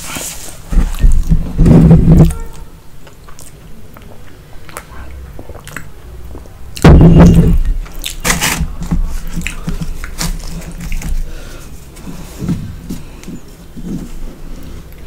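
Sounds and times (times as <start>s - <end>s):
chewing: 3.0s - 6.5s, 9.1s - 11.3s.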